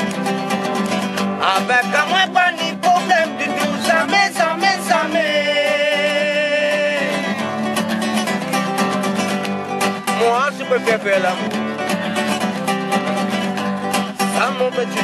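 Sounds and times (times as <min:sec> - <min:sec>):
strummed acoustic guitar: 0:00.0 - 0:15.0
man singing: 0:01.4 - 0:07.6, 0:10.1 - 0:12.2, 0:14.0 - 0:15.0.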